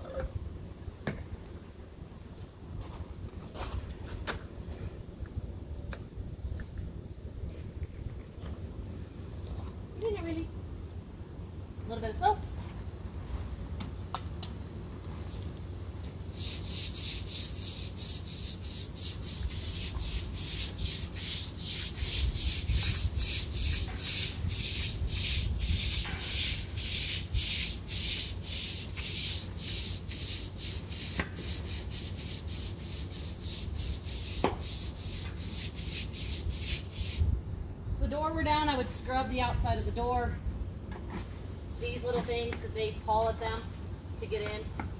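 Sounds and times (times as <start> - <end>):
scrub brush on wet concrete: 16.3 - 37.2.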